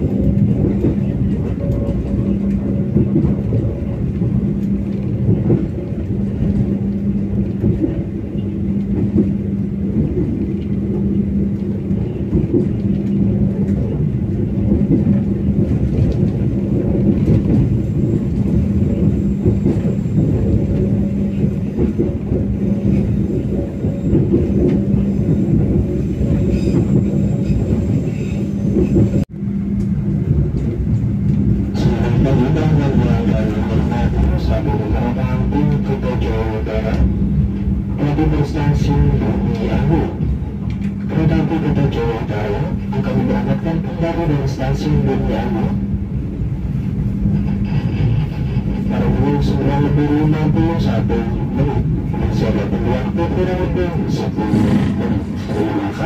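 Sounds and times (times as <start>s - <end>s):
train rumbling: 0.0s - 56.0s.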